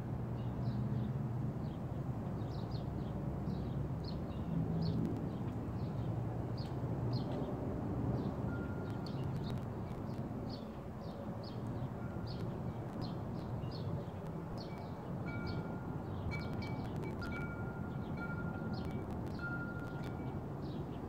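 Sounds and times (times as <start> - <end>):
low wind noise: 0.0 - 21.0
faint chime-like tones: 8.5 - 9.2, 14.7 - 20.4.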